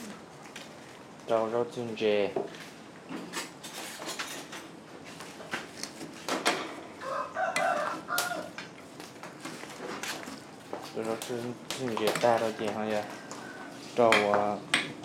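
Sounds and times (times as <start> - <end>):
rooster crowing: 7.0 - 8.6, 12.9 - 13.8.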